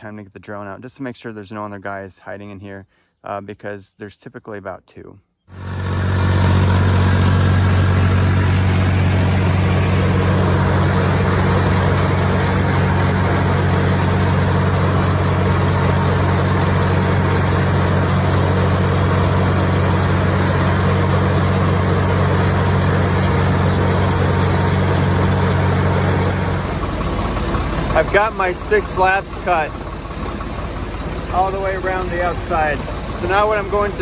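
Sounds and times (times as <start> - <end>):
tractor diesel engine running: 5.5 - 34.0.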